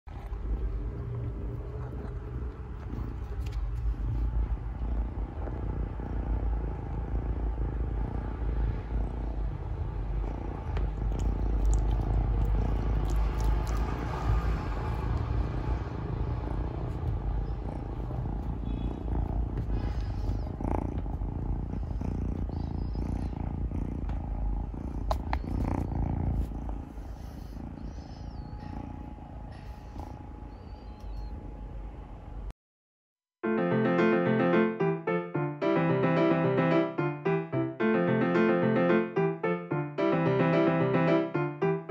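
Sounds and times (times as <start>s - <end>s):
cat purring: 0.1s - 32.5s.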